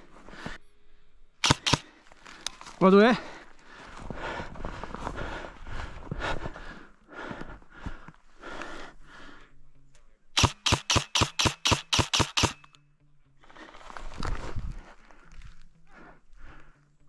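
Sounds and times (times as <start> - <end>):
sharp loud clicks: 1.4 - 1.9, 10.4 - 12.8
soft rustling and scuffing: 13.4 - 15.8.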